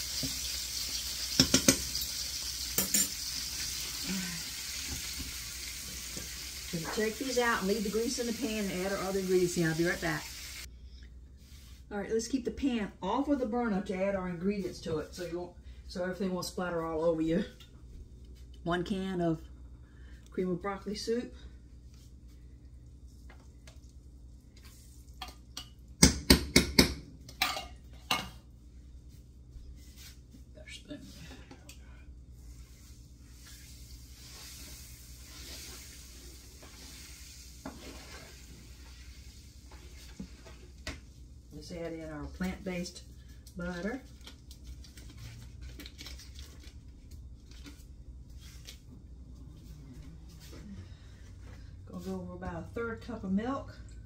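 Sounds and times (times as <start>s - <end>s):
paper wrapper crinkling and tearing: 44.0s - 48.8s.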